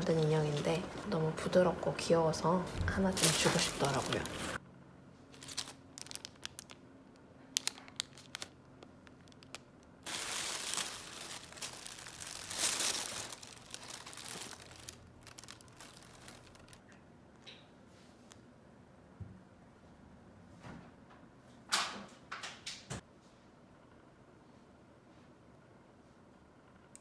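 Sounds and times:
packing straw rustling: 3.0s - 4.6s, 5.3s - 6.8s, 7.6s - 8.5s, 9.2s - 16.8s
plastic packet crinkling: 3.0s - 4.6s, 5.3s - 16.8s
tissue paper crumpling: 3.1s - 4.6s, 5.3s - 6.8s, 7.6s - 8.5s, 9.2s - 16.8s.

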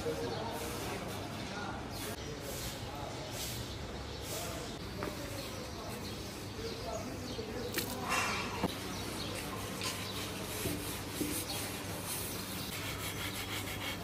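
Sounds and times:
hand scrubbing wet metal: 7.7s - 14.0s.

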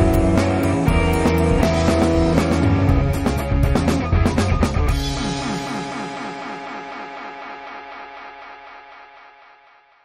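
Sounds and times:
rock music with guitar and drums: 0.0s - 9.8s.

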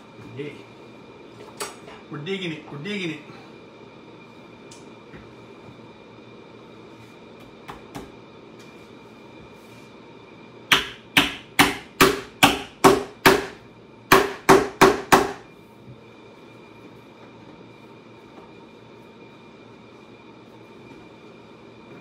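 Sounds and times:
hammer striking nails: 10.7s - 15.4s.

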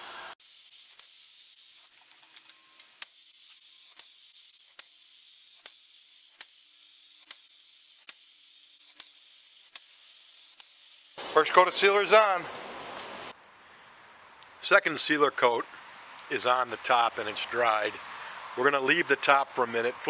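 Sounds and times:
spray gun hissing: 0.4s - 2.0s, 3.0s - 11.2s.

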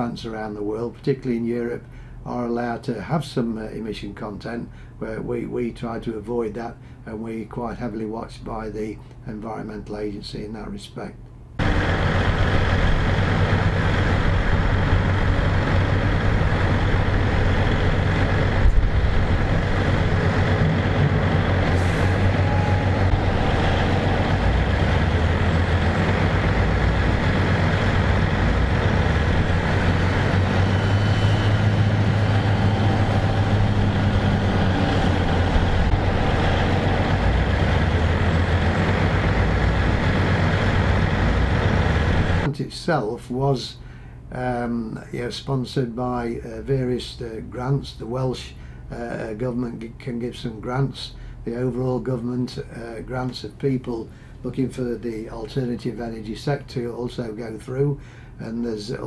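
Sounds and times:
diesel machinery droning: 11.6s - 42.5s.

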